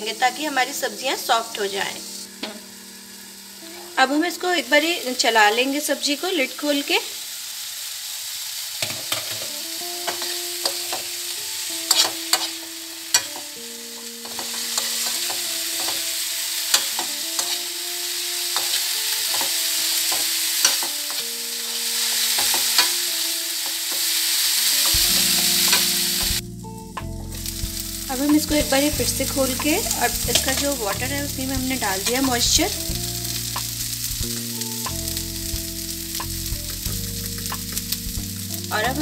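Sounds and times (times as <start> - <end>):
vegetables sizzling in a pan: 0.0 - 39.0
spoon clicking and scraping pan: 8.8 - 11.2, 11.9 - 13.4, 14.0 - 16.1, 16.7 - 17.6, 18.6 - 21.2, 22.1 - 23.0, 24.8 - 26.4, 29.2 - 30.8.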